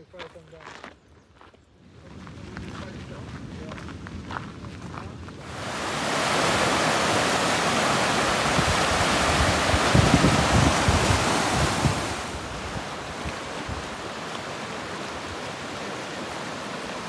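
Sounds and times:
wind buffeting microphone: 0:01.4 - 0:16.8
creek rushing over rocks: 0:05.4 - 0:17.0.

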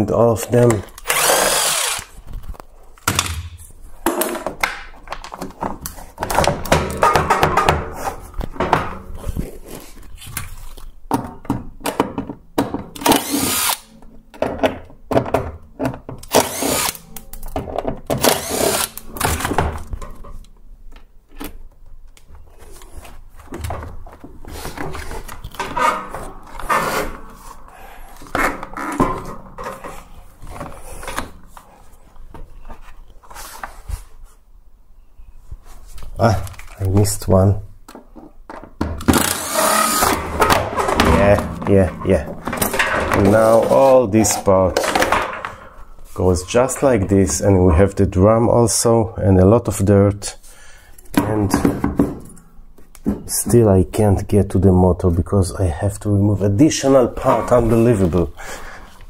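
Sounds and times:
cordless drill running: 0:01.0 - 0:02.1, 0:13.1 - 0:13.9, 0:16.3 - 0:17.0, 0:18.2 - 0:19.0, 0:39.1 - 0:40.2
plastic parts clattering: 0:37.9 - 0:45.8.

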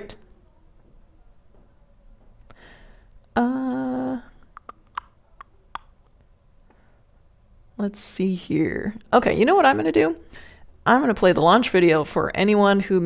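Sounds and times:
person humming: 0:03.3 - 0:05.1.

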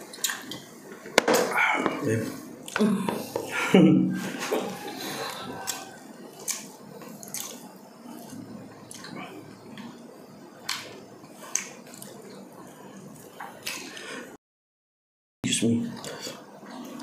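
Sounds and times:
chewing: 0:00.1 - 0:00.7, 0:04.3 - 0:10.0, 0:10.6 - 0:14.1
wet mouth clicks and lip smacks: 0:06.4 - 0:07.6.

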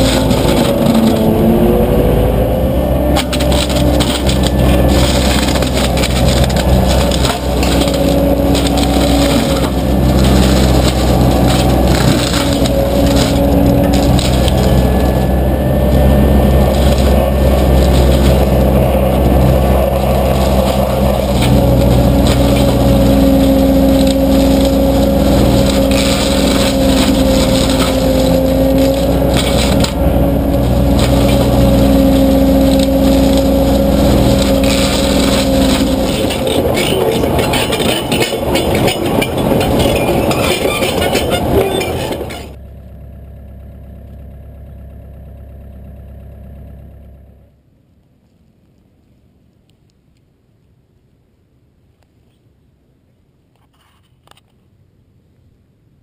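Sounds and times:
brush mulcher grinding: 0:00.0 - 0:44.8.

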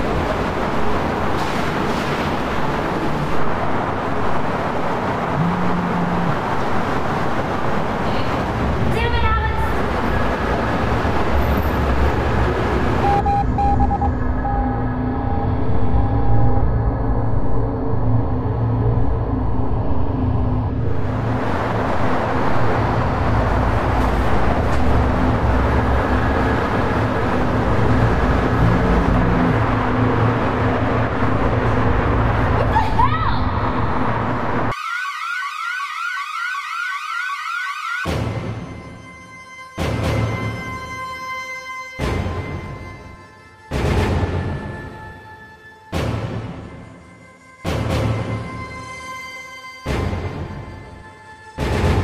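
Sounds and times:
dense background rumble: 0:00.0 - 0:34.7.

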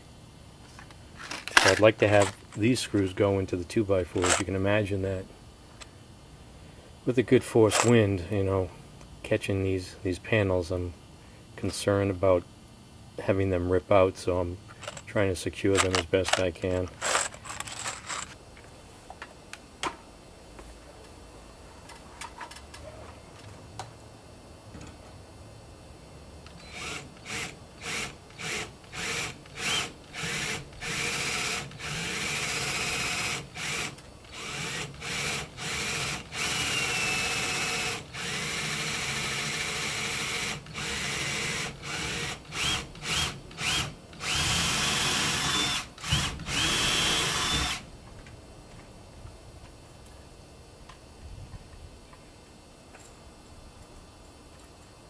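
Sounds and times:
cordless drill whirring: 0:26.6 - 0:47.8.

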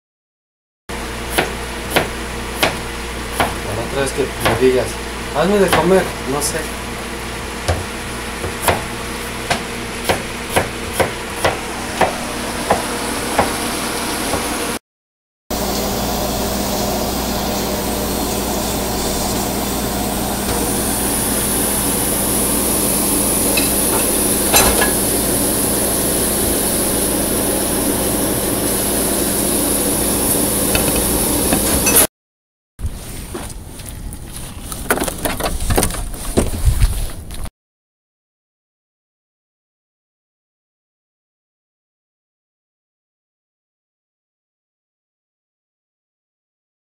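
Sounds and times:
knife chopping on cutting board: 0:01.3 - 0:03.6, 0:04.4 - 0:04.7, 0:05.7 - 0:06.1, 0:07.7 - 0:13.6
soup boiling with hiss: 0:15.6 - 0:32.0.

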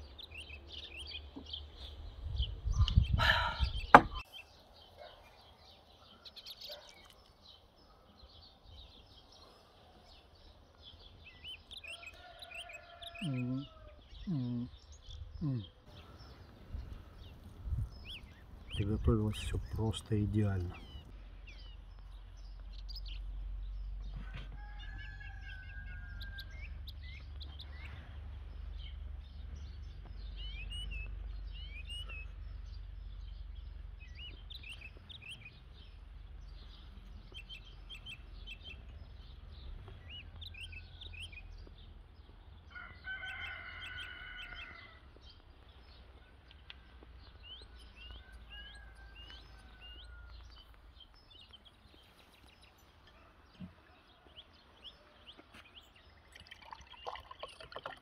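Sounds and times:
small birds chirping: 0:00.0 - 0:58.0
rooster crowing: 0:11.8 - 0:14.0, 0:24.2 - 0:26.8, 0:42.7 - 0:45.1, 0:47.8 - 0:50.6.

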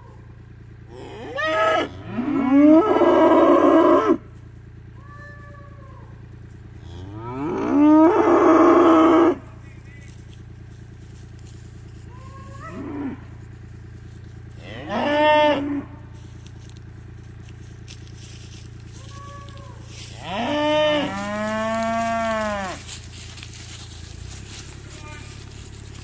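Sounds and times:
cattle mooing: 0:00.9 - 0:04.2, 0:06.8 - 0:09.5, 0:12.1 - 0:13.5, 0:14.6 - 0:16.2, 0:19.0 - 0:23.1, 0:24.3 - 0:26.0.

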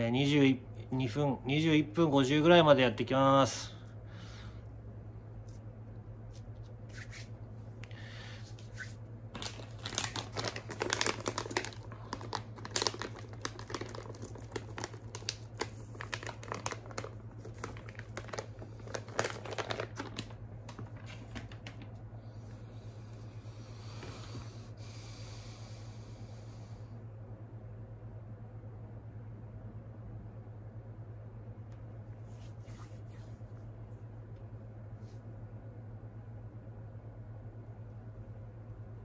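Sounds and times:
steady low hum: 0:00.0 - 0:39.0
plastic packaging crinkling: 0:09.3 - 0:22.0.

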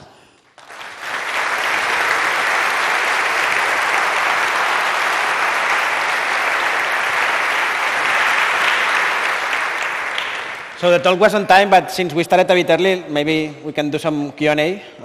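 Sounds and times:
audience applauding: 0:00.5 - 0:11.5.

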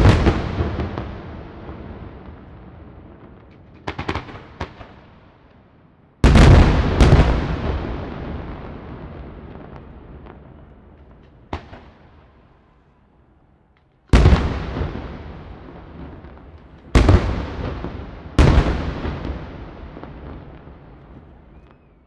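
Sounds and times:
firework booms with rolling echo: 0:00.0 - 0:13.0, 0:14.0 - 0:22.0
small firework crack: 0:03.2 - 0:05.7, 0:09.4 - 0:22.0.

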